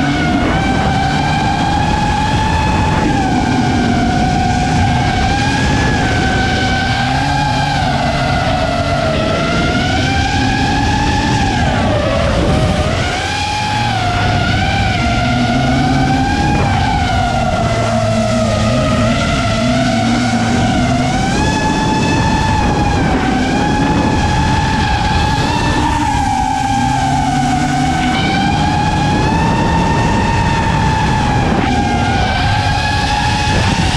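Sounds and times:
low engine note: 0.0s - 33.9s
quadcopter motors whining: 0.0s - 33.9s.

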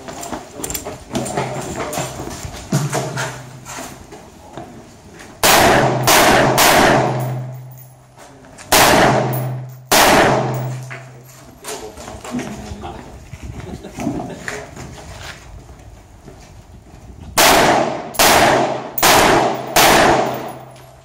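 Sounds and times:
rifle shots echoing: 5.4s - 7.7s, 8.7s - 10.9s, 17.4s - 20.8s.

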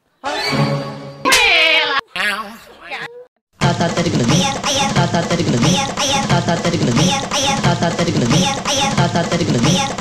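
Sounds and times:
background music with repeating beat: 3.6s - 10.0s.

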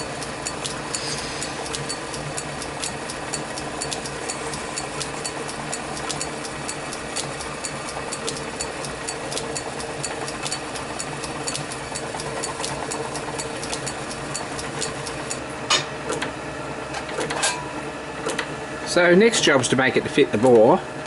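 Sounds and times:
regular light ticking: 0.0s - 15.5s.

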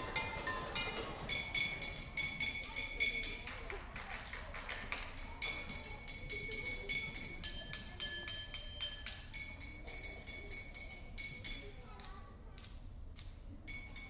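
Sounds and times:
strikes on ringing metal kitchenware: 0.0s - 3.5s, 5.2s - 11.9s.

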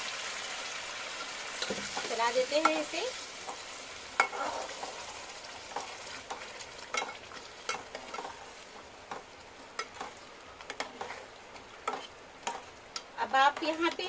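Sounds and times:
gravy sizzling: 0.0s - 14.0s
spatula scraping metal pot: 10.7s - 12.7s.

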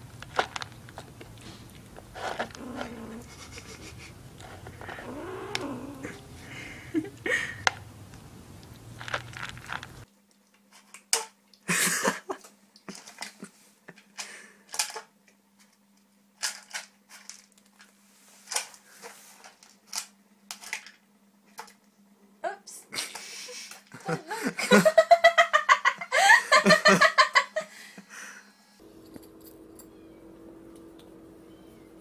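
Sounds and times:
kitten crunching dry kibble: 0.0s - 6.6s, 7.5s - 10.8s
faint steady hum: 0.0s - 32.0s.

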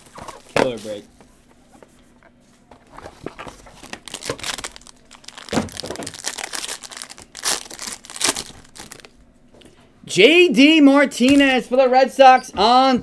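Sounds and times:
plastic crinkling and tearing: 2.9s - 9.2s
knife slitting plastic wrap: 4.0s - 9.1s.

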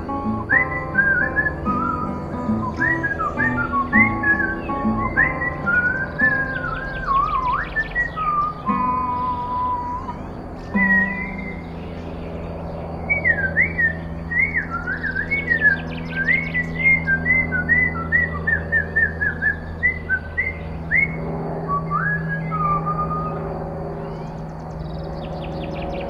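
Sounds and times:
faint bird chirps: 0.0s - 26.0s
person whistling a tune: 0.3s - 11.6s.

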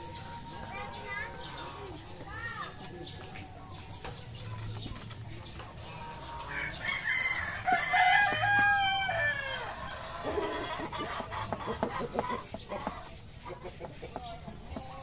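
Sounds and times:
rooster crowing: 6.5s - 10.5s.

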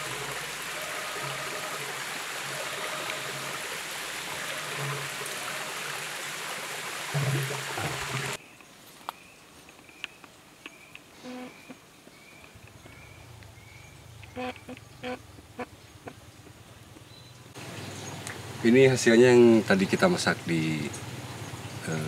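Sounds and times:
river stream flowing: 0.0s - 8.4s, 17.5s - 22.0s.

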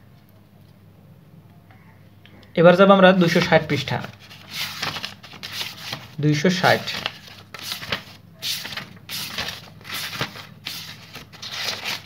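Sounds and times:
paper pages flipping: 3.2s - 12.0s.

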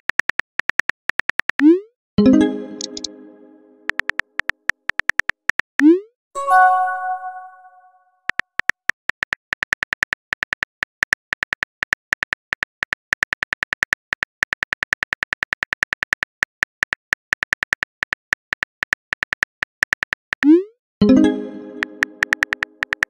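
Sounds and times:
message chime ringing: 2.2s - 3.9s, 6.4s - 8.0s
phone keyboard typing clicks: 2.8s - 3.1s, 3.9s - 5.6s, 21.8s - 23.0s.

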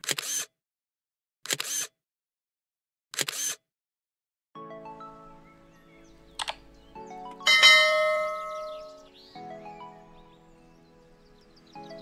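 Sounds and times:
camera shutter clicks: 0.0s - 0.5s, 1.5s - 1.9s, 3.2s - 3.6s, 6.4s - 6.6s
music: 4.6s - 12.0s.

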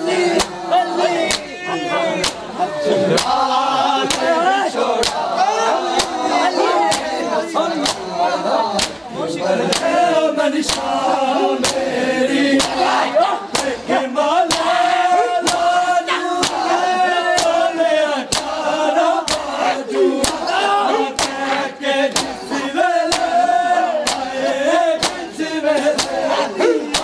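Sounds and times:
men chanting together: 0.0s - 27.0s
hands slapping bare chests: 0.3s - 0.6s, 1.3s - 1.5s, 2.2s - 2.5s, 3.2s - 3.4s, 4.0s - 4.4s, 5.0s - 5.3s, 5.9s - 6.2s, 6.9s - 7.1s, 7.8s - 8.1s, 8.8s - 9.0s, 9.7s - 10.0s, 10.6s - 11.0s, 11.6s - 11.9s, 12.6s - 13.8s, 14.5s - 15.8s, 16.4s - 16.7s, 17.3s - 17.7s, 18.3s - 18.6s, 19.2s - 19.6s, 20.2s - 20.5s, 21.2s - 22.4s, 23.0s - 24.4s, 25.0s - 25.2s, 25.9s - 27.0s.

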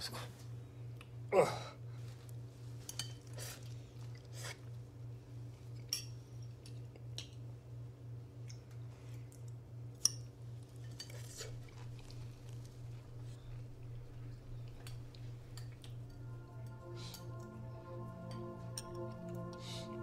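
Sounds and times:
pulsing low hum: 12.9s - 20.0s.

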